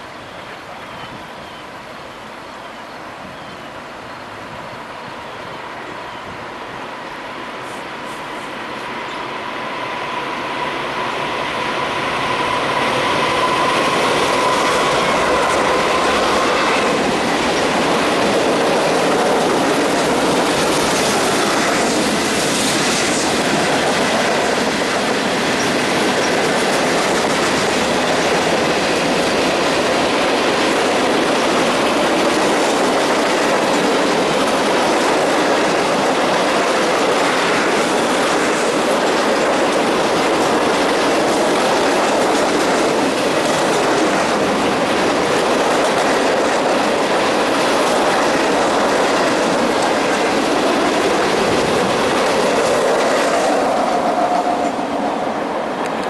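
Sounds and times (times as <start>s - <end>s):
freight train wheels clattering over rails: 10.6s - 55.1s.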